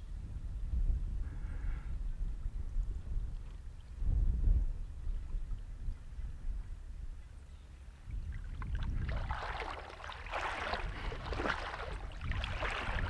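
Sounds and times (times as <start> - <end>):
wind rumble on microphone: 0.0 - 13.0
seawater sloshing around legs: 8.4 - 13.0.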